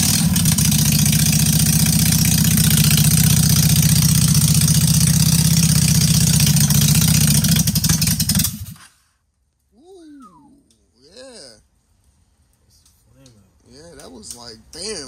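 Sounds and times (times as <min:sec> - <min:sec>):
motorcycle engine idling: 0:00.0 - 0:08.8.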